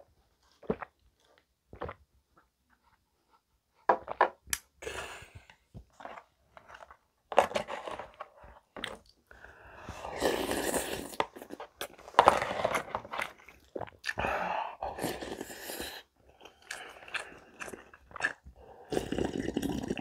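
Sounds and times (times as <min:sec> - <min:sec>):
person gulping a drink: 0:00.0 - 0:02.1, 0:03.9 - 0:20.0
plastic container scraping and knocking: 0:11.2 - 0:13.4.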